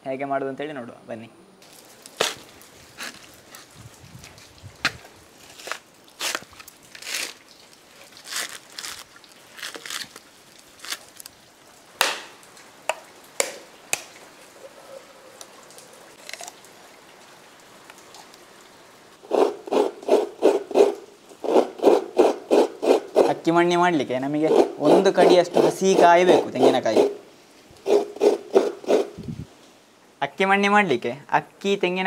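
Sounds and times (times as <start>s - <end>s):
coconut scraper rasping: 19.3s - 23.5s, 24.4s - 27.2s, 27.9s - 29.2s.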